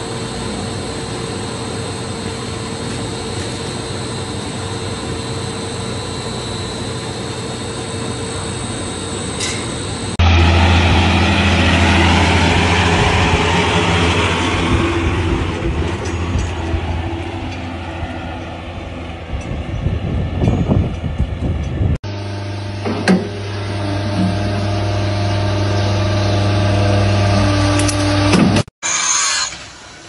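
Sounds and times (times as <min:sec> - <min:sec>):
tractor engine drone: 0:00.0 - 0:28.7
machine hum with high whine: 0:00.0 - 0:30.0.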